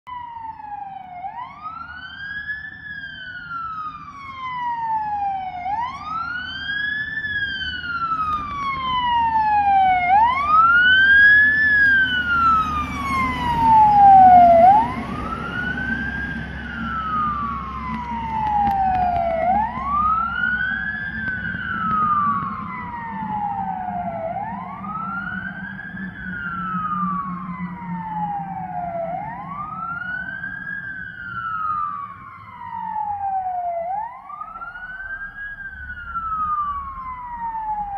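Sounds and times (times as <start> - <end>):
fire engine siren wailing: 0.0 - 37.9
diesel engine rumble: 0.1 - 37.9.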